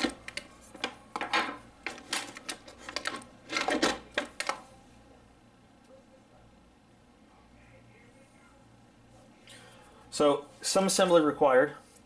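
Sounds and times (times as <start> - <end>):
plastic parts handled in a box: 0.0 - 4.6.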